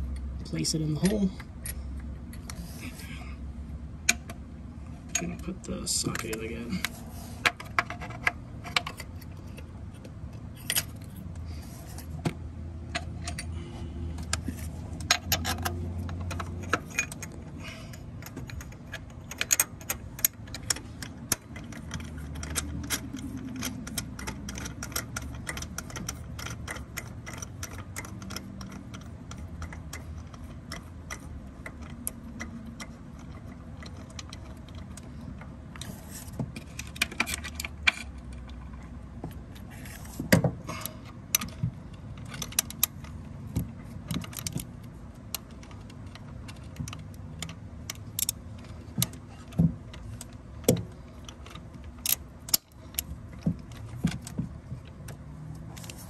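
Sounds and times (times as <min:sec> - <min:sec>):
low steady hum: 0:00.0 - 0:56.0
metal socket clicks and rattles: 0:15.0 - 0:35.4, 0:49.9 - 0:53.1.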